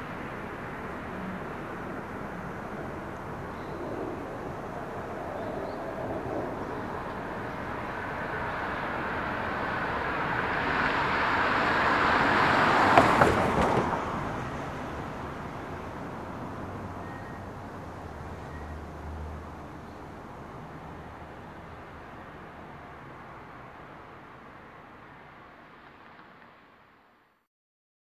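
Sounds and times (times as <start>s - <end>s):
car driving past: 3.8s - 15.1s.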